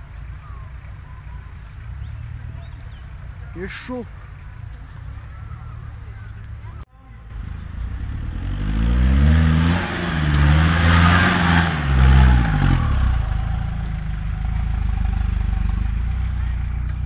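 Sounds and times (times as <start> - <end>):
high whine: 7.3 - 16.8
pickup engine revving: 7.3 - 17.0.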